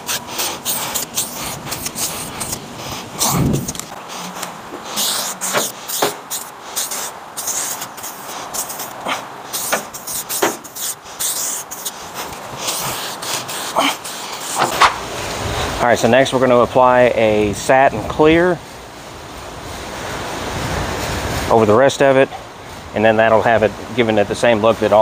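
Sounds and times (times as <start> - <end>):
spray can hissing: 0.0 - 15.0.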